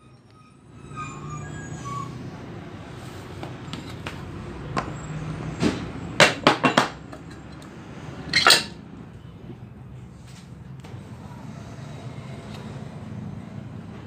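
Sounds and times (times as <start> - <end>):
metal clinking: 8.3 - 8.8.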